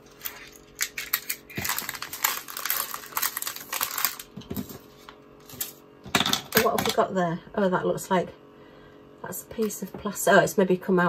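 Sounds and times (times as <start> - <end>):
plastic bags rustling: 0.0 - 5.8.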